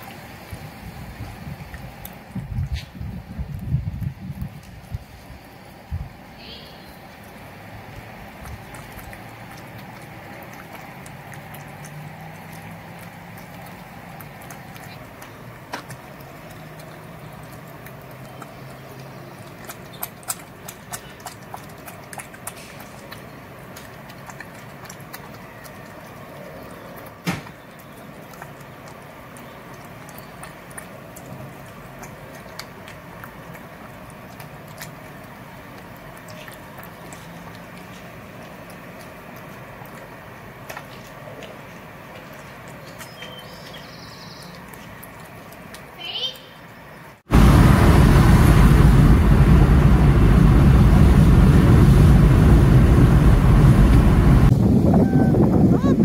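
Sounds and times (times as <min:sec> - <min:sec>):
teeth clicking on plastic bowl: 0:08.4 - 0:26.0.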